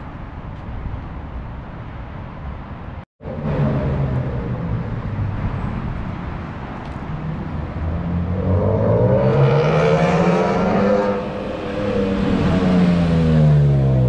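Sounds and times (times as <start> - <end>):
car engine revving under throttle: 7.8 - 14.0.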